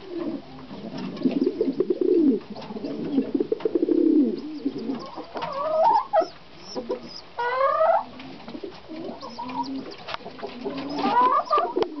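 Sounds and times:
hens clucking: 0.0 - 12.0
hen rising calls: 2.8 - 12.0.

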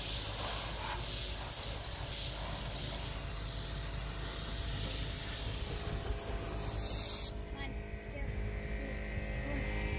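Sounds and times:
paint spray gun hissing: 0.0 - 7.5.

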